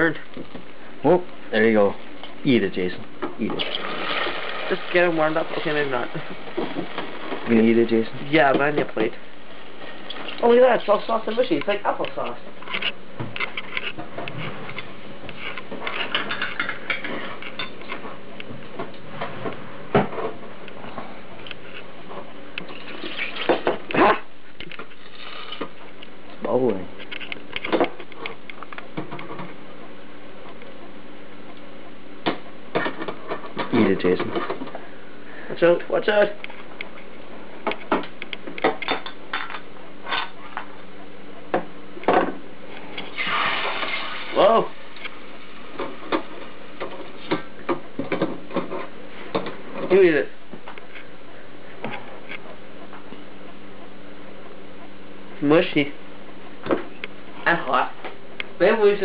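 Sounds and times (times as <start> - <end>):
hot oil crackling: 3.4 - 11.4, 43.0 - 45.1.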